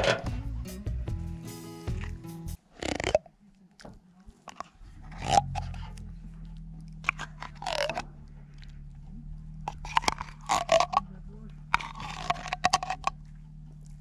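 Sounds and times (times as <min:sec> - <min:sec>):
utensil scraping a cooking pot: 0:00.0 - 0:00.4, 0:09.6 - 0:14.0
steady low hum: 0:03.4 - 0:14.0.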